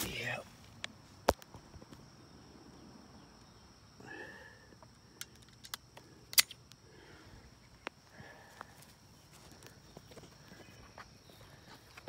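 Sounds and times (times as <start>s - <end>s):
sharp clicks: 5.2s - 6.8s.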